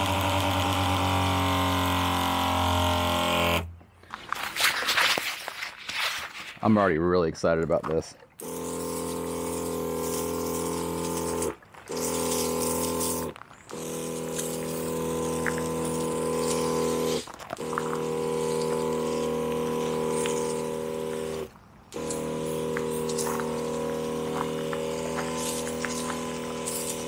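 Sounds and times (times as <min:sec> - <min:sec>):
electric pump humming: 0:00.0 - 0:03.9, 0:08.3 - 0:27.0
water hissing from spray wand: 0:08.4 - 0:27.0.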